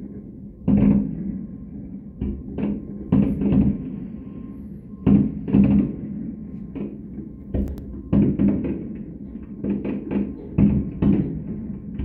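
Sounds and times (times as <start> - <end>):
distant fireworks booming: 0.6 - 12.0.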